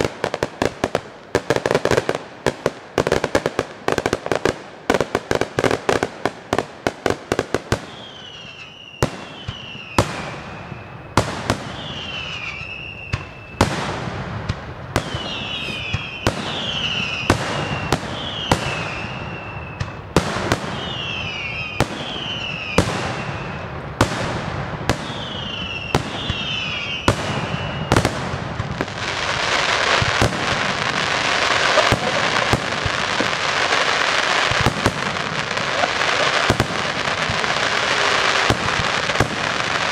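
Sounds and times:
firework bangs: 0:00.0 - 0:39.9
firework crackling: 0:00.0 - 0:39.9
falling firework whistle: 0:07.7 - 0:13.9, 0:14.9 - 0:39.9.

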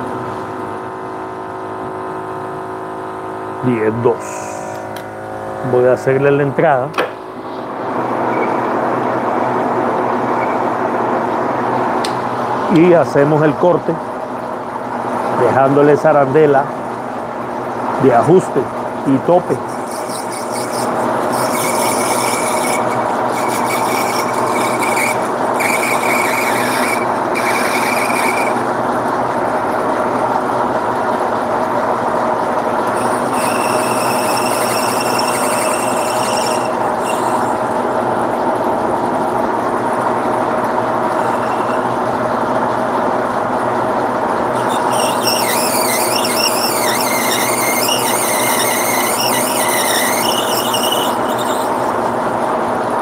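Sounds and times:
metal lathe running: 0:17.9 - 0:53.0
cutting tool squealing: 0:19.4 - 0:28.7, 0:32.9 - 0:37.7, 0:41.0 - 0:42.0, 0:44.5 - 0:52.1.

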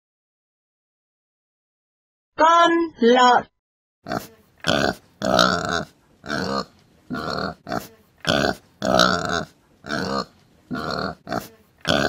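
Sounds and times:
pig grunting: 0:04.1 - 0:12.0.

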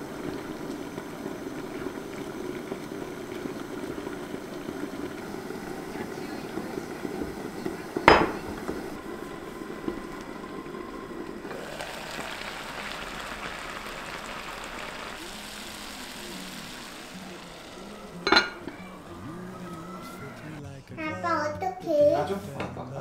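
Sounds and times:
pot of water bubbling: 0:00.0 - 0:20.6
kitchenware clinks: 0:08.0 - 0:08.6, 0:18.2 - 0:18.9.

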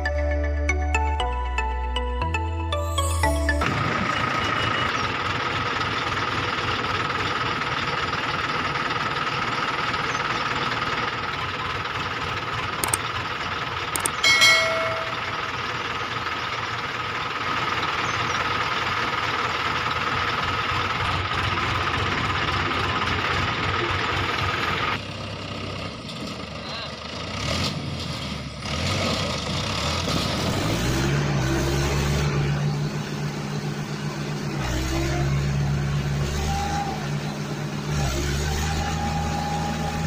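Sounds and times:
tractor engine running: 0:03.1 - 0:40.0
sharp clicks: 0:12.8 - 0:13.0, 0:14.0 - 0:14.3
short bell-like ding: 0:14.1 - 0:15.4.

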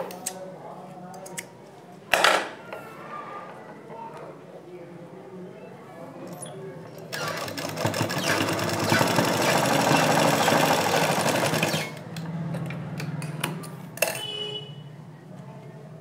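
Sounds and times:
sewing machine needle clattering: 0:07.2 - 0:12.0.

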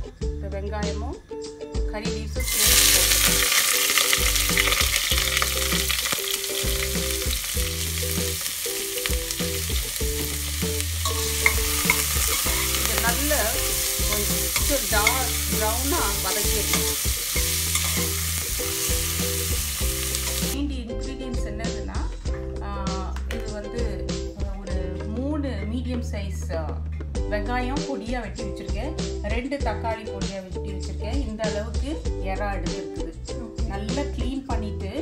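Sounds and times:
onions sizzling in hot oil: 0:02.4 - 0:20.6
metal spoon scraping pot: 0:11.0 - 0:19.2.

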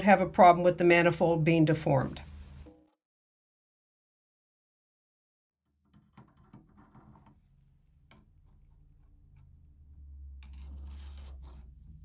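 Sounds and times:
wrench scraping on metal: 0:08.1 - 0:12.0.

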